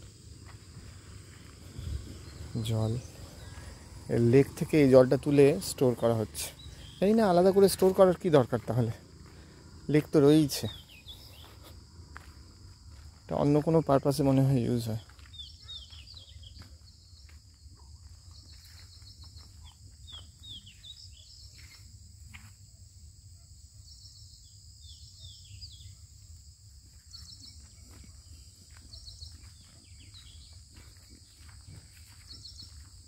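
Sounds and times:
birds chirping and whistling: 0:01.0 - 0:08.1, 0:10.6 - 0:11.7, 0:15.0 - 0:17.3, 0:27.1 - 0:32.9.

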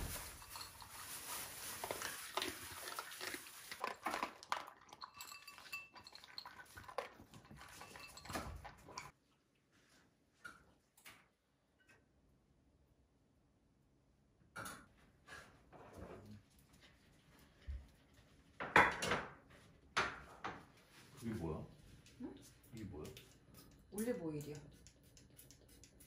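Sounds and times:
dogs crunching kibble: 0:00.0 - 0:08.0
kibble clinking on bowls: 0:00.0 - 0:09.1.

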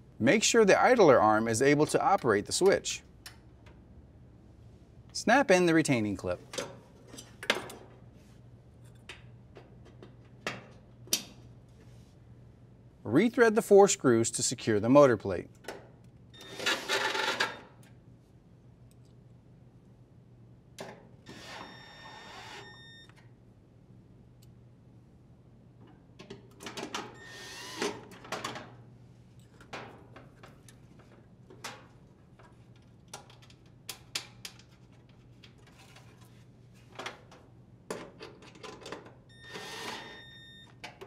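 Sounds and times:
cordless drill whirring: 0:39.5 - 0:40.3.

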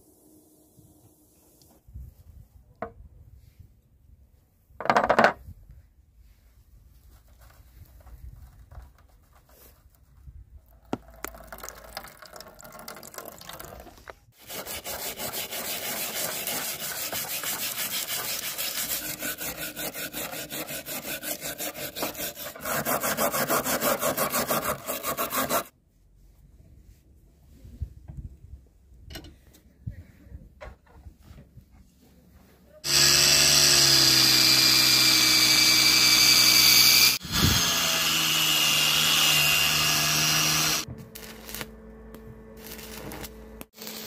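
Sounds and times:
brush scrubbing rusty metal: 0:14.4 - 0:25.7.

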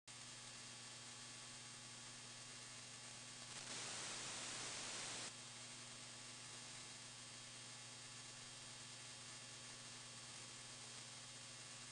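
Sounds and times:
low steady hum: 0:00.1 - 0:11.9
radio static hiss: 0:02.0 - 0:05.4.

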